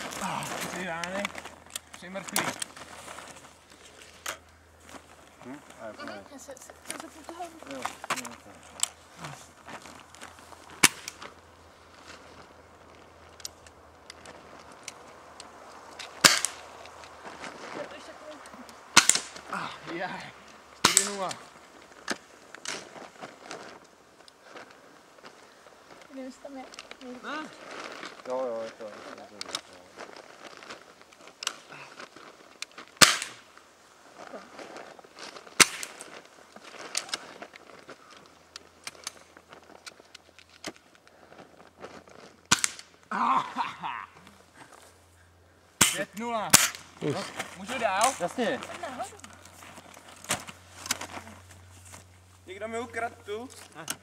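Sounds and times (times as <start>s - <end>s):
air rifle shots: 16.2s - 16.6s, 18.9s - 19.4s, 33.0s - 33.4s, 42.5s - 42.9s, 45.8s - 46.9s
sharp gunshots: 18.9s - 19.4s, 33.0s - 33.4s, 45.8s - 46.8s.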